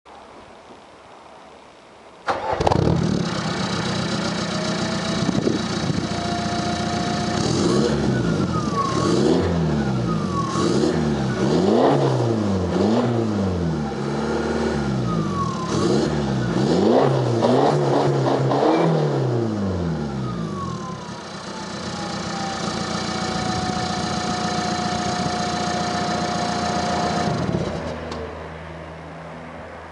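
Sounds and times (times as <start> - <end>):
diesel engine idling and revving: 2.3 - 29.9
turbo whine: 2.8 - 12.6, 18.6 - 27.9.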